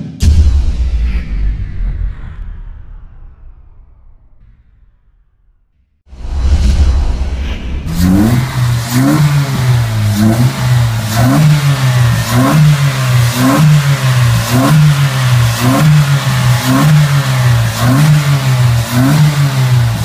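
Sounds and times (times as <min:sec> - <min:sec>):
brief whoosh: 0:00.2 - 0:10.4
car engine revving: 0:07.8 - 0:20.0.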